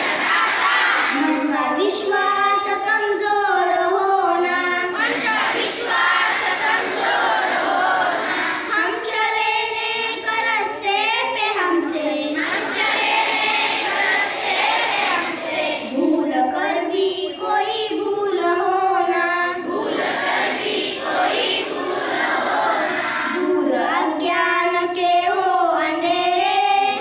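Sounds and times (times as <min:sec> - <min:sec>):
children singing a prayer: 0:00.0 - 0:27.0
girl singing into a microphone: 0:01.1 - 0:05.4, 0:08.4 - 0:12.6, 0:15.8 - 0:19.8, 0:23.2 - 0:27.0.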